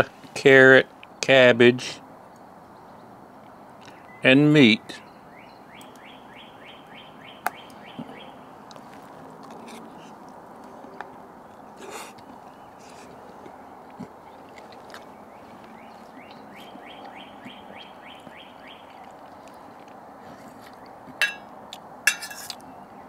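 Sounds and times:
bird trill: 5.0 - 8.5, 15.1 - 19.2
metal spoon clinking on bowl: 21.2 - 21.5, 22.1 - 22.6.

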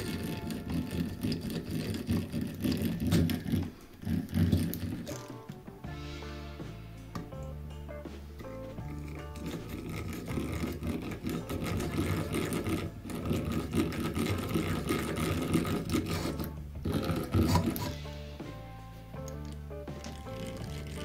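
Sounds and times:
hand drill gears whirring: 0.0 - 5.2, 8.6 - 18.0, 20.0 - 21.0.

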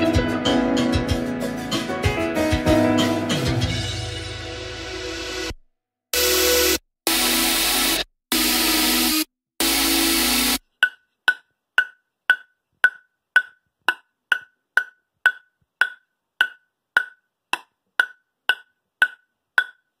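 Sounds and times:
ping pong ball bouncing on wood: 10.8 - 20.0.

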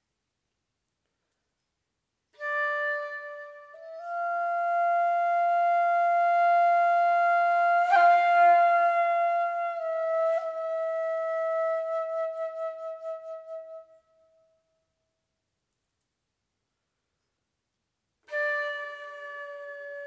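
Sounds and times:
flute holding long notes: 2.4 - 14.5, 18.3 - 20.0.

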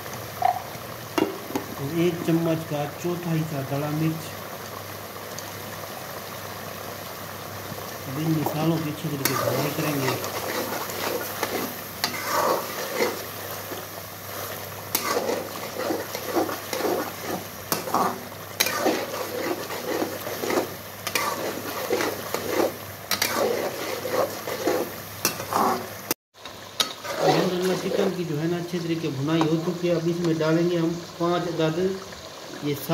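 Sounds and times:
gravy sizzling: 0.0 - 32.9
metal spoon scraping a pan: 9.0 - 25.9, 26.8 - 28.2.

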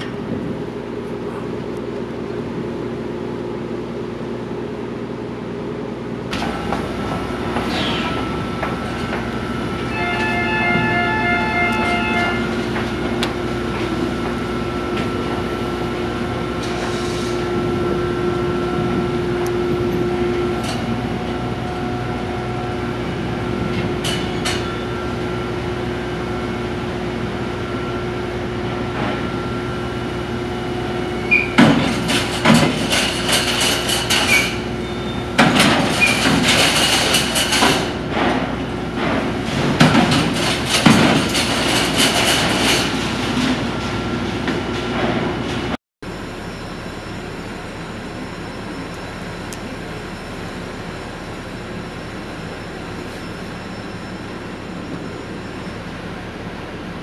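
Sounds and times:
ship engines and machinery: 0.0 - 57.0
pulsing electronic warning tone: 9.4 - 12.8.

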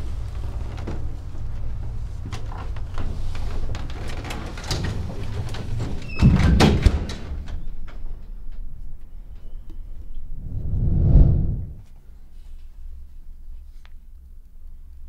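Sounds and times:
door squeak: 6.0 - 7.1.

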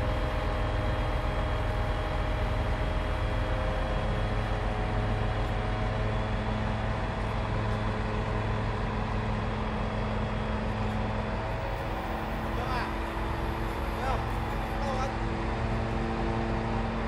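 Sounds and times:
diesel engine running under load: 0.0 - 17.0
hydraulic mechanical hum: 4.4 - 17.0.

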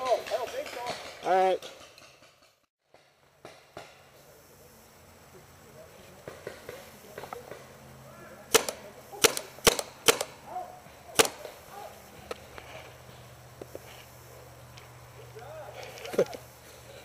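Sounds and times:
paintball pistol shots: 8.5 - 10.4, 11.2 - 11.6.

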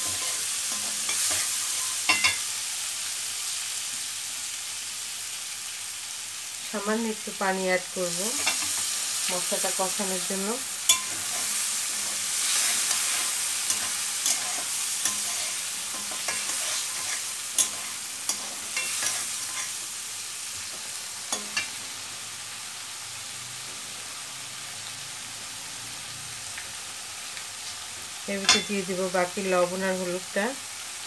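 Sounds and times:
spatula scraping pan: 0.0 - 2.4, 10.9 - 19.8
food sizzling in a wok: 0.0 - 31.0.

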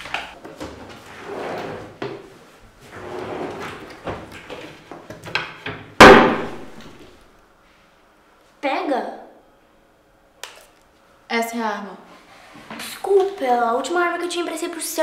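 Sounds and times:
loud bang: 6.0 - 7.0.

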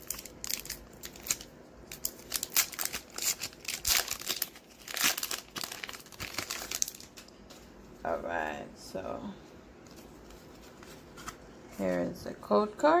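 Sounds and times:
foil wrapper tearing and crinkling: 0.0 - 7.3.

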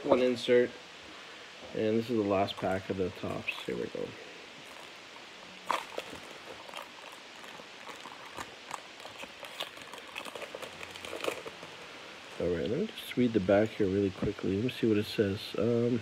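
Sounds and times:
foil wrapper crinkling and tearing: 2.3 - 12.4.

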